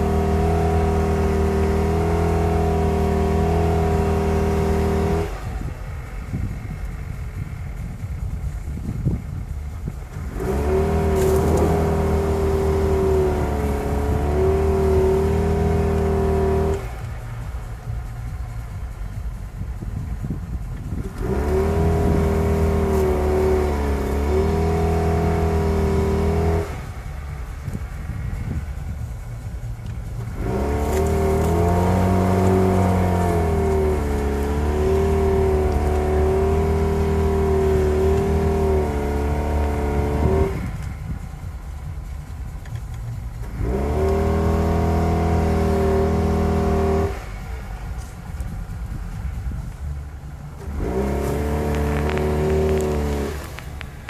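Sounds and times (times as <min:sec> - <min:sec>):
car engine revving: 0:00.0 - 0:54.0
wheels spinning in snow: 0:00.0 - 0:54.0.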